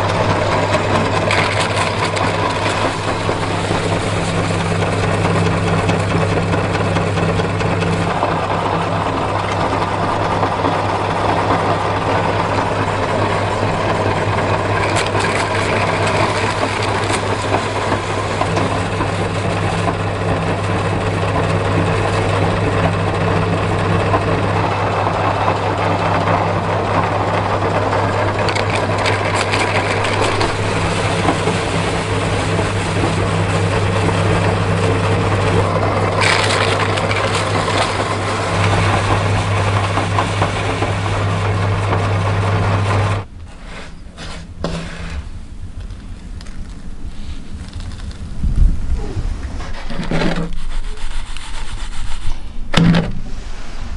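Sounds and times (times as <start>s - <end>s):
meat grinder motor humming: 0.0s - 43.3s
gritty crunching of cookies: 45.8s - 48.5s.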